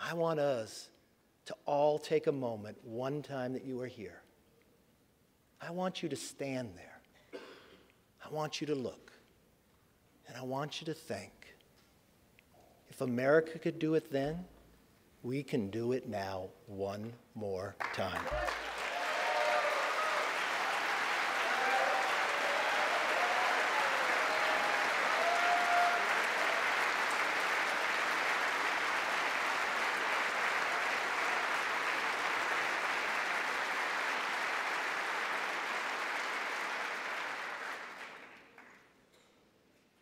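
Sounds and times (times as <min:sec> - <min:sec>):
crowd applauding: 0:17.8 - 0:38.9.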